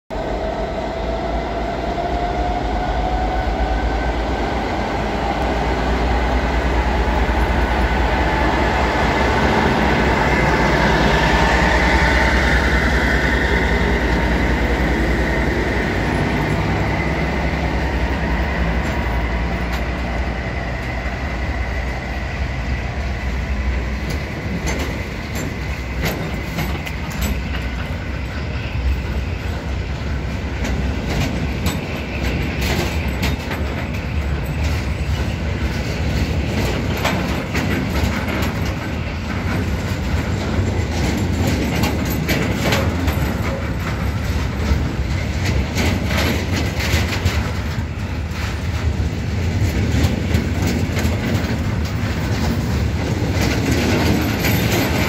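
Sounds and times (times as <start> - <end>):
diesel locomotive whine: 0.1 - 55.0
wagons rumbling: 0.2 - 55.0
wheels clicking over rail joints: 23.3 - 55.0.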